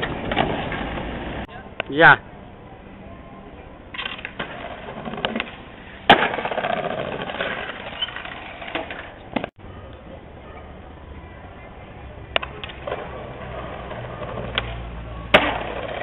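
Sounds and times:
skateboard wheels rolling on pavement: 0:00.0 - 0:01.6, 0:02.4 - 0:16.0
skateboard clack: 0:00.0 - 0:01.9, 0:03.9 - 0:09.5, 0:12.3 - 0:16.0.

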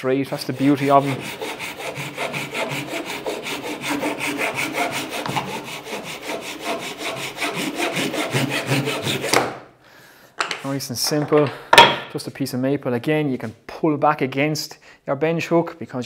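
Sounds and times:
pull saw cutting a board: 0:00.6 - 0:09.5.

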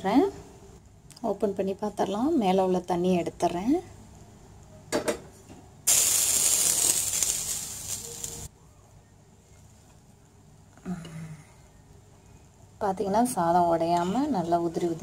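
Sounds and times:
steam hissing from pot: 0:05.9 - 0:08.5.

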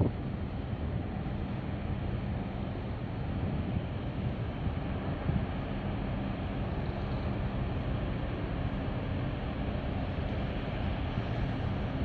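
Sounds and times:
wind on microphone: 0:00.0 - 0:01.3, 0:03.2 - 0:08.7
ship engine low rumble: 0:00.0 - 0:12.0.

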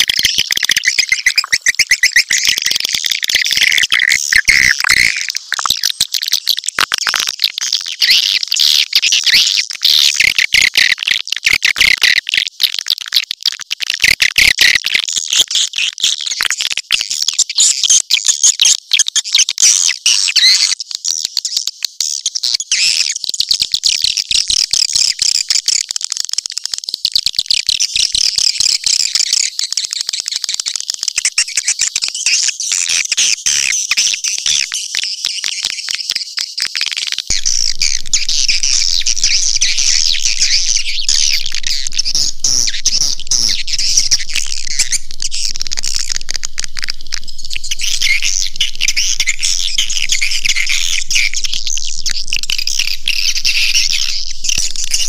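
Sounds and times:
faint low hum: 0:37.3 - 0:55.0
recorded swiftlet chattering: 0:37.3 - 0:55.0.

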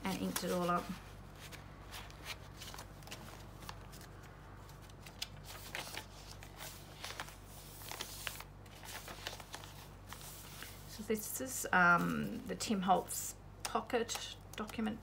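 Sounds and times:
paper pages rustling: 0:00.0 - 0:11.2.

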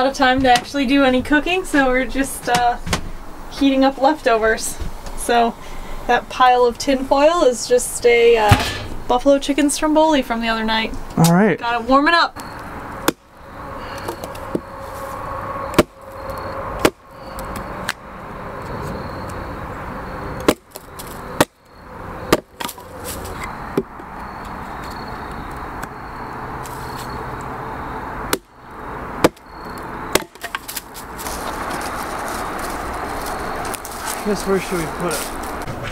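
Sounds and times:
steady background noise: 0:00.0 - 0:35.9
hatchet chopping wood: 0:16.8 - 0:17.0, 0:20.4 - 0:21.6, 0:22.3 - 0:22.8, 0:28.3 - 0:28.5, 0:29.2 - 0:29.4, 0:30.1 - 0:30.9.

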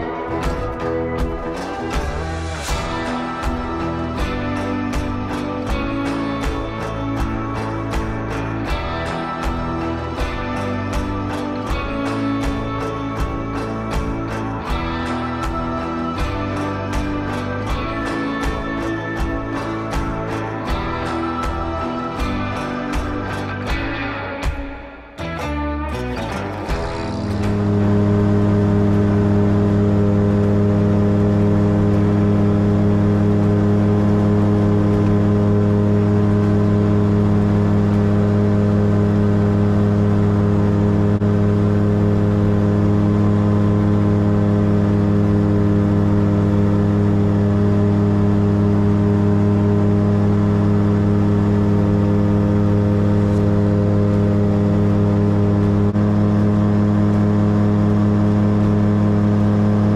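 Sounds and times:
light aircraft engine droning: 0:26.7 - 0:59.9.

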